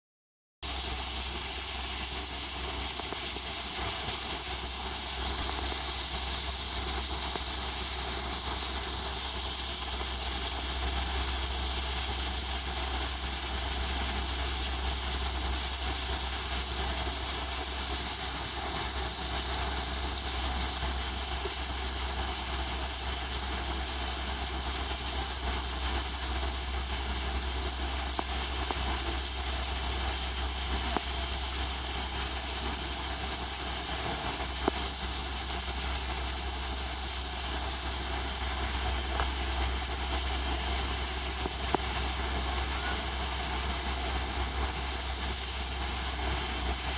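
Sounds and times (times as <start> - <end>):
high-pitched hiss: 0.6 - 46.9.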